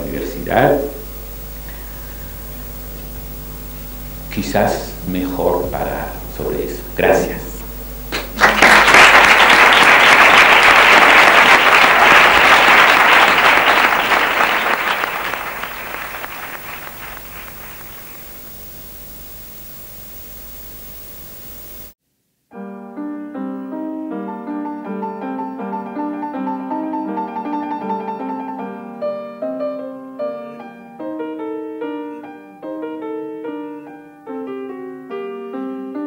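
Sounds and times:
audience applauding: 8.1 - 18.7
piano music: 8.5 - 18.7, 22.6 - 36.0.

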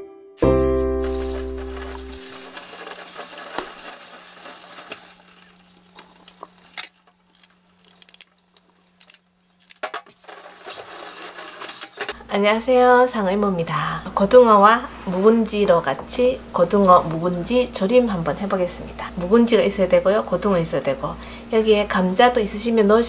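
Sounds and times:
held musical chord: 0.0 - 2.6
tap water running into sink: 1.0 - 6.8.

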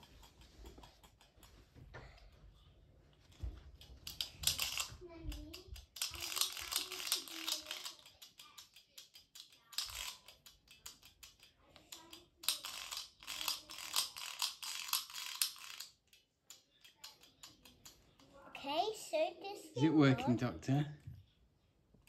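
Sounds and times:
plastic parts clicking and crackling: 3.4 - 18.3.

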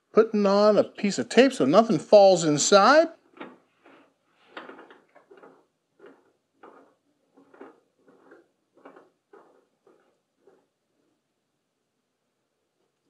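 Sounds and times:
tape rustling and tapping: 3.2 - 10.7.

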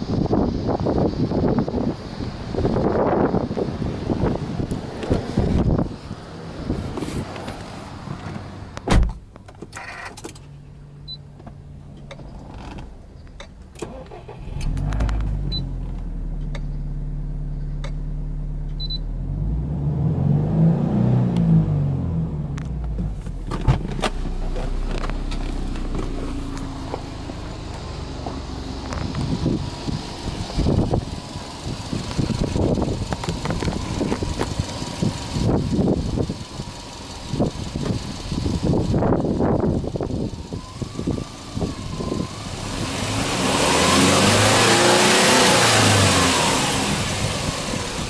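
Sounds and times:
car engine starting and idling: 0.0 - 48.0
single thump: 8.8 - 9.2, 22.8 - 26.2.

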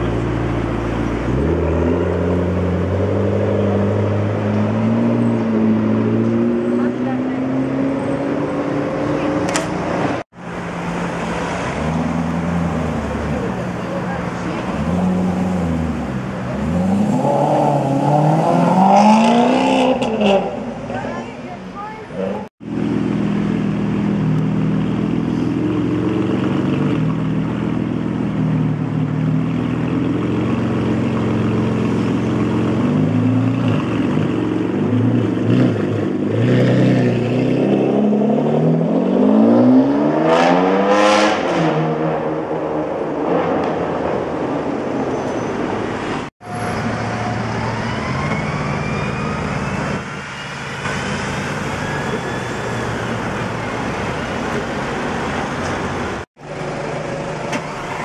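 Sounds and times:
car engine running in traffic: 42.5 - 58.0.

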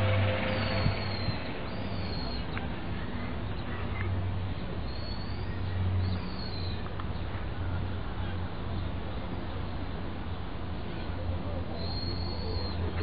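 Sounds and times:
public-address chime: 0.0 - 1.9
steady low hum: 0.0 - 2.1
short high bird chirps: 0.0 - 2.5.

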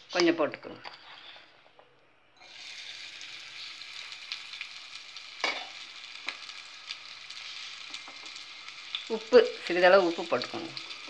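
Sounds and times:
shallots sizzling in hot oil: 2.4 - 11.0.

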